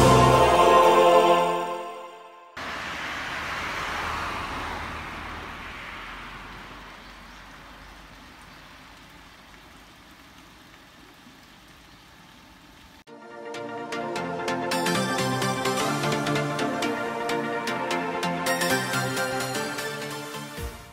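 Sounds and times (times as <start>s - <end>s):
low rumble: 2.6s - 8.4s
passing vehicle tyre hiss: 2.6s - 9.4s.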